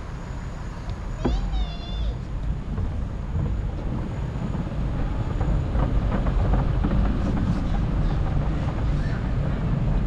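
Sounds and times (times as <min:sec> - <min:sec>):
faint rolling noise: 0:00.0 - 0:10.0
wind buffeting microphone: 0:02.1 - 0:10.0.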